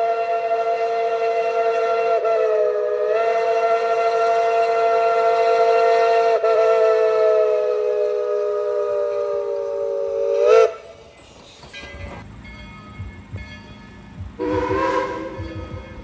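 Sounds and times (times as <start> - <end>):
steam locomotive whistle: 0.0 - 11.1, 14.4 - 16.0.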